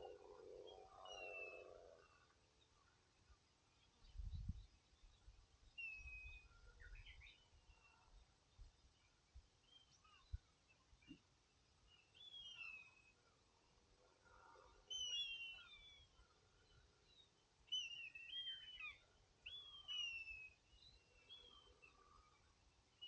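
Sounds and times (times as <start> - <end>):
songbird chirps and whistles: 11.9 - 13.1, 14.9 - 16.1, 17.7 - 21.6.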